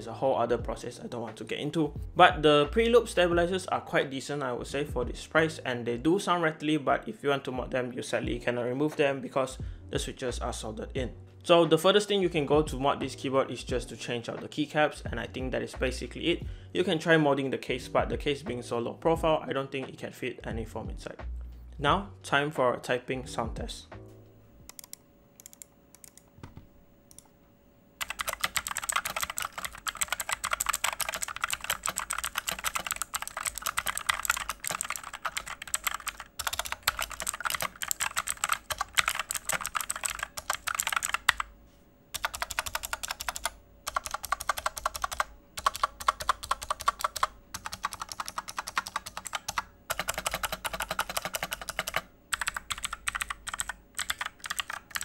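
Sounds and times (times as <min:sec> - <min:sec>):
mechanical keyboard typing: 0:24.7 - 0:26.3, 0:28.0 - 0:41.5, 0:42.2 - 0:55.0.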